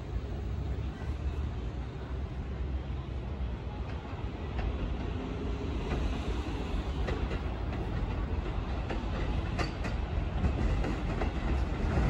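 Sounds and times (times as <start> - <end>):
electric train rumble: 0.0 - 12.0
wheels clicking on rails: 6.8 - 12.0.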